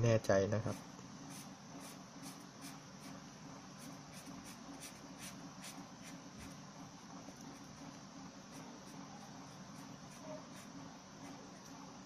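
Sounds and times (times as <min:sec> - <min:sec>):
pen scratching on paper: 0:00.7 - 0:03.2, 0:03.8 - 0:06.6, 0:08.5 - 0:11.6.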